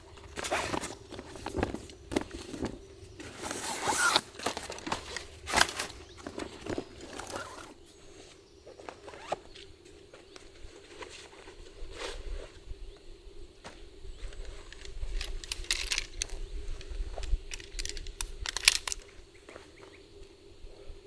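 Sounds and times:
waterproof fabric crinkling: 0:03.4 - 0:07.8, 0:08.9 - 0:09.4
sharp clicks: 0:17.2 - 0:19.1.

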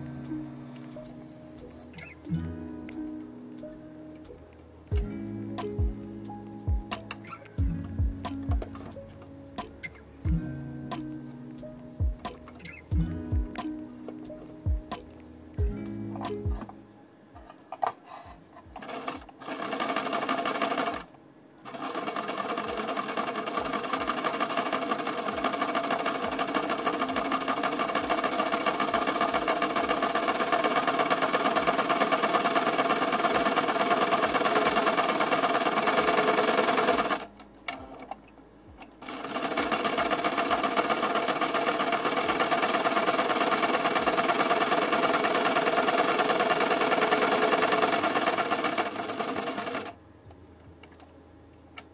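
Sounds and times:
sewing machine stitching: 0:18.8 - 0:37.3, 0:39.0 - 0:50.0.

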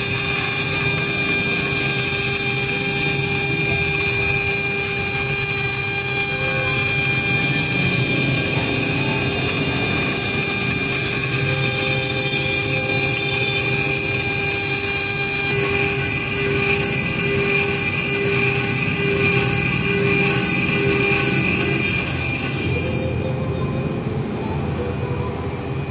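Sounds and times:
end mill cutting metal: 0:00.0 - 0:24.8
mill spindle whining: 0:00.0 - 0:25.9.

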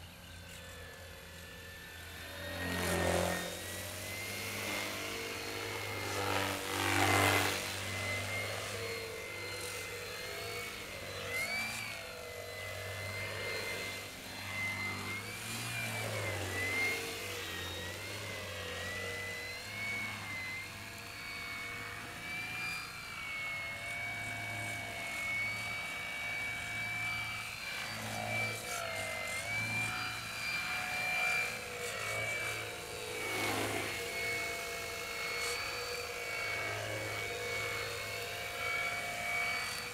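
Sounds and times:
model airplane motor whining: 0:00.0 - 0:39.9.

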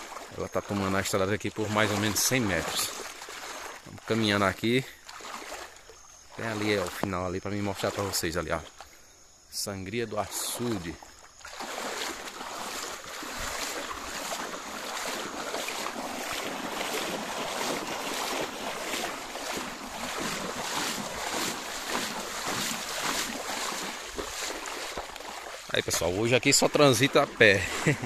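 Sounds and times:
feet splashing through floodwater: 0:00.0 - 0:09.0, 0:09.9 - 0:28.0.

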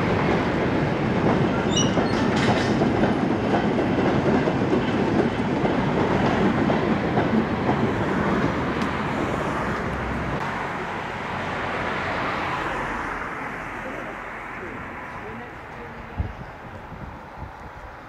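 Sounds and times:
train wheels rolling on rails: 0:00.0 - 0:12.6.

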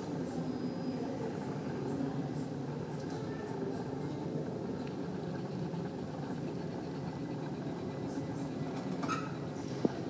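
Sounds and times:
airport ambience rumble: 0:00.0 - 0:10.0.

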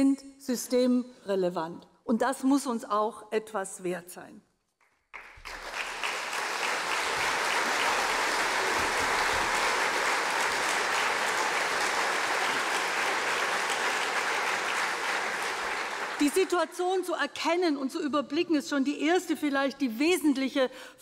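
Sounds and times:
audience applauding: 0:05.1 - 0:16.6.

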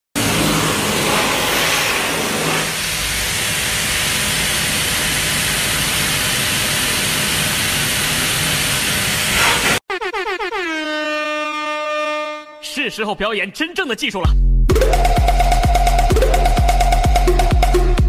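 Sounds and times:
blow dryer rushing hiss: 0:00.2 - 0:09.8.

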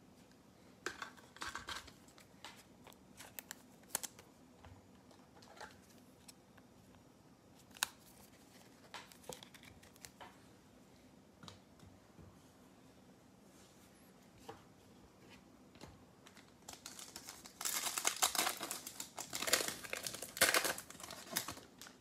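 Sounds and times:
card rustles: 0:01.0 - 0:04.3, 0:07.6 - 0:10.2.

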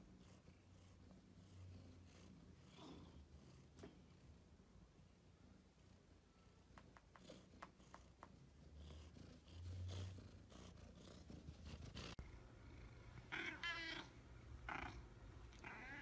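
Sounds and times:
cat purring: 0:00.0 - 0:16.0.

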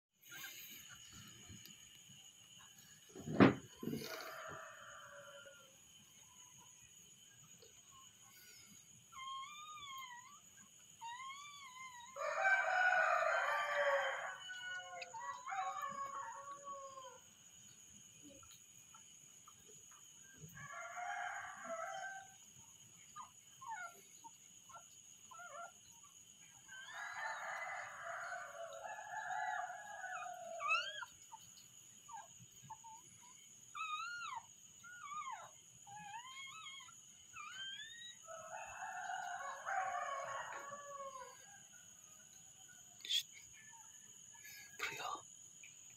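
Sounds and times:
rooster crowing: 0:03.2 - 0:05.9, 0:12.1 - 0:17.3, 0:20.4 - 0:22.4, 0:26.6 - 0:31.2, 0:37.5 - 0:43.2.

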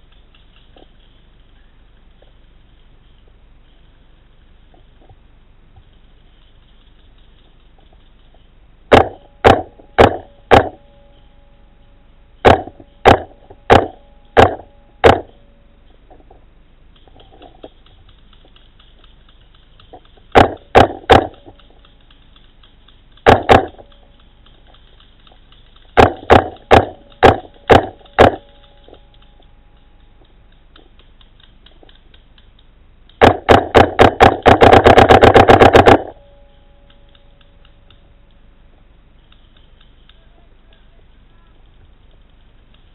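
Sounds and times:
paintball marker firing pops: 0:08.9 - 0:10.8, 0:12.4 - 0:15.4, 0:19.9 - 0:21.8, 0:23.2 - 0:23.9, 0:25.9 - 0:28.6, 0:33.1 - 0:36.2.

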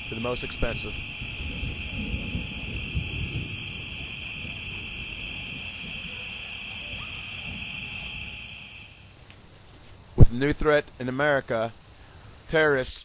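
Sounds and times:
low rumble: 0:00.0 - 0:09.2
crickets chirring: 0:00.0 - 0:13.0.

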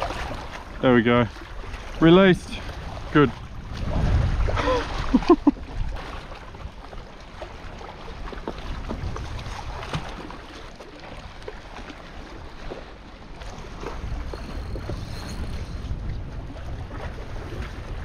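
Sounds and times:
wind buffeting microphone: 0:00.0 - 0:07.0, 0:07.7 - 0:10.4, 0:13.2 - 0:18.0.

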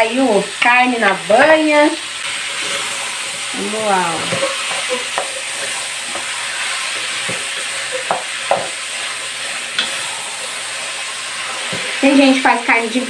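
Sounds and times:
meat sizzling in a pot: 0:00.0 - 0:13.0
wooden spoon knocking on pot: 0:04.1 - 0:06.4, 0:07.1 - 0:08.8.

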